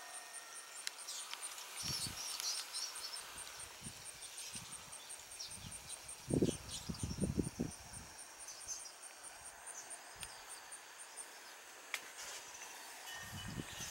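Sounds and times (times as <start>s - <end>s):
insect chirping: 0.0s - 13.9s
swallows twittering: 0.5s - 11.6s.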